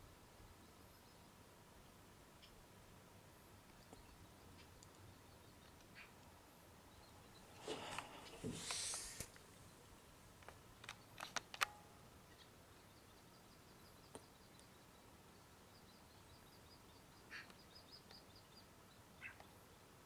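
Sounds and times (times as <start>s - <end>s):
distant small birds calling: 0.0s - 20.0s
sharp clicks: 10.4s - 11.8s.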